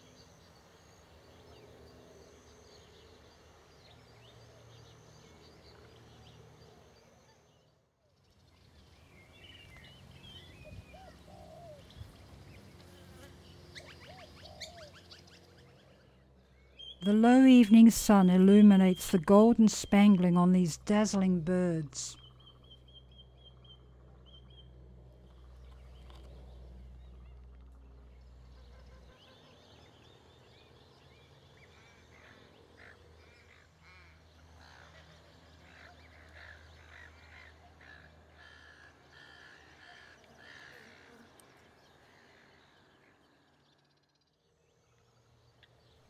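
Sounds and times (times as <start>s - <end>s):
distant animal calls: 31.8s - 43.3s.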